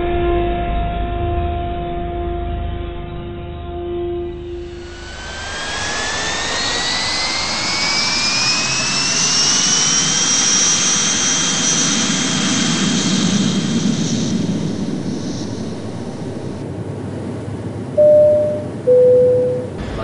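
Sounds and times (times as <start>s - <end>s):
deep aircraft rumble: 4.1s - 20.0s
jet engine roar: 4.2s - 18.2s, 19.7s - 20.0s
jet engine turbine whine: 4.2s - 20.0s.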